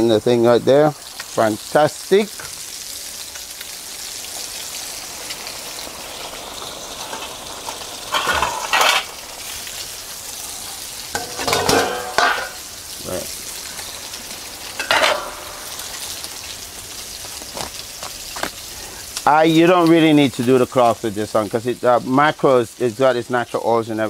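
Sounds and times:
fish sizzling in oil: 0:00.0 - 0:24.0
metal plate and utensils clattering: 0:08.1 - 0:09.2, 0:11.1 - 0:12.6, 0:14.8 - 0:15.8.

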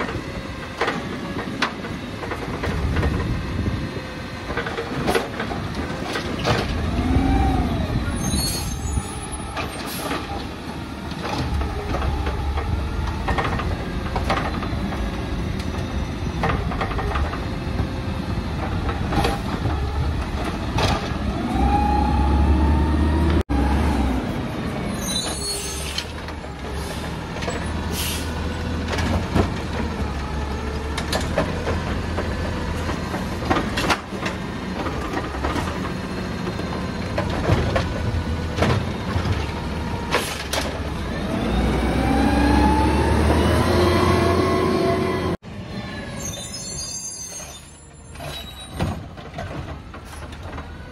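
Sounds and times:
diesel engine revving: 0:06.4 - 0:08.5, 0:17.4 - 0:25.0, 0:34.4 - 0:45.4
air brake hisses: 0:27.9 - 0:28.4.

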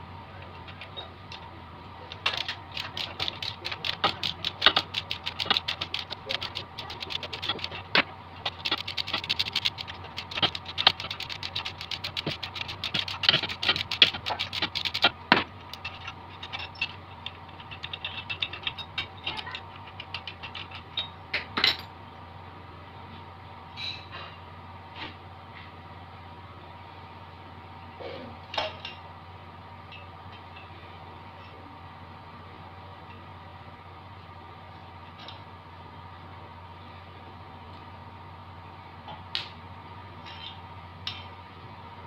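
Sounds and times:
hand tool clicking on metal: 0:02.1 - 0:21.1.

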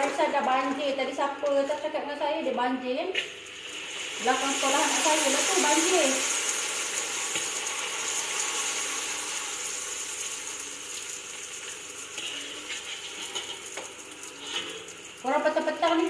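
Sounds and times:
crackers frying in hot oil: 0:03.2 - 0:16.0
spatula stirring in wok: 0:11.3 - 0:15.1.

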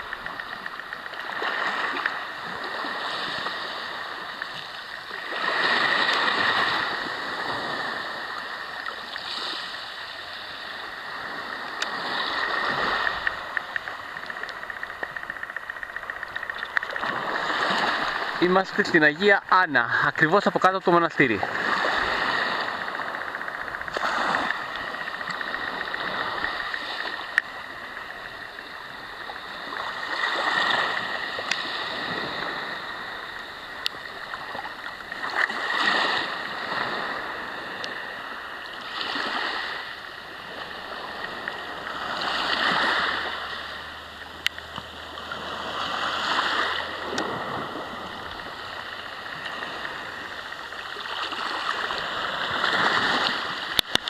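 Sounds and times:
waves washing on pebble beach: 0:00.0 - 0:54.0.

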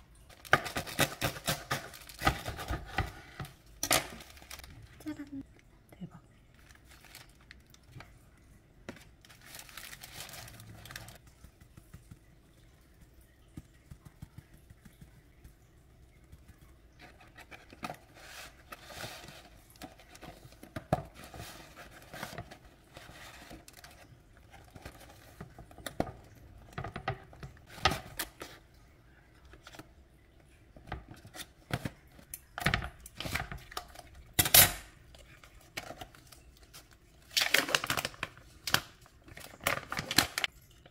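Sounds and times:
food packaging crinkling: 0:00.1 - 0:05.4, 0:06.5 - 0:12.3, 0:31.2 - 0:40.6.

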